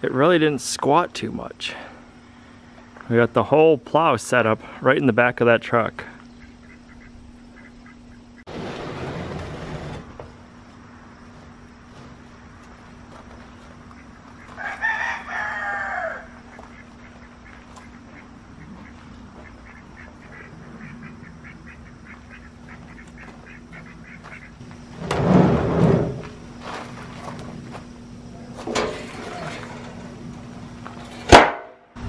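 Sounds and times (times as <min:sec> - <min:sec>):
metal frame clattering and scraping: 0:08.5 - 0:10.4, 0:24.9 - 0:27.8, 0:28.5 - 0:31.3
rooster crowing: 0:14.5 - 0:16.6.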